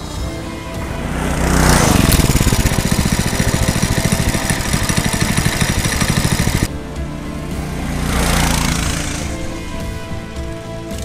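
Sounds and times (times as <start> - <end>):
go-kart engine chugging: 0.0 - 11.0.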